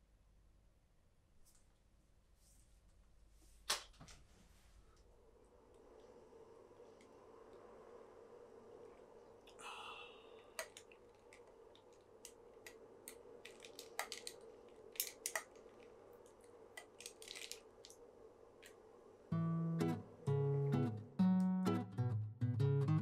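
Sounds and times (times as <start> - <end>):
acoustic guitar tune: 19.3 - 23.0.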